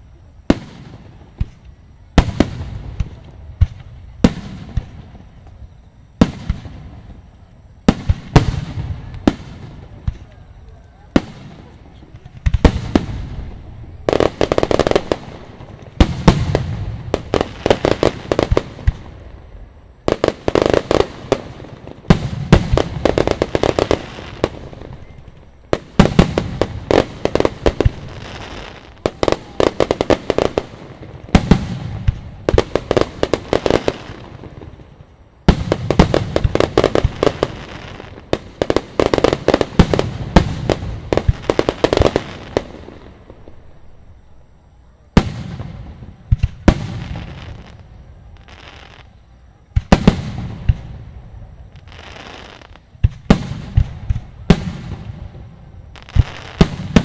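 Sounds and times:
fireworks bangs and crackling: 0.0 - 57.0.

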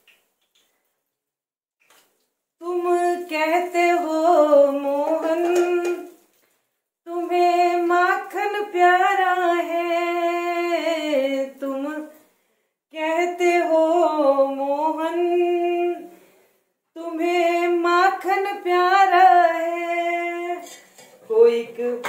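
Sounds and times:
woman singing unaccompanied: 2.6 - 6.2, 7.1 - 12.2, 12.9 - 16.1, 17.0 - 22.0
woman breathing: 12.2 - 12.8, 16.1 - 16.8.

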